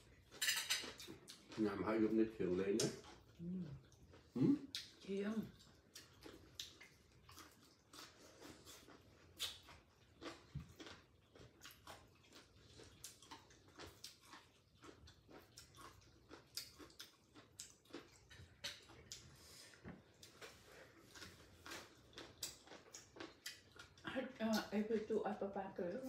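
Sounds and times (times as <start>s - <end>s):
chewing: 0.0s - 25.1s
food clicks and crackles: 4.8s - 19.3s, 21.1s - 24.7s.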